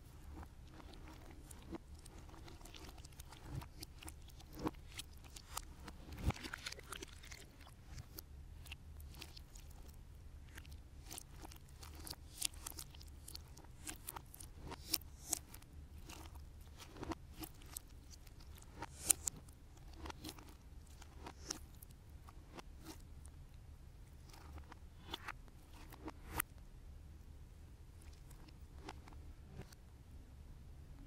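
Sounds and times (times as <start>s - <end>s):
faint low hum: 0.0s - 31.0s
slime squished by hand: 0.3s - 21.9s.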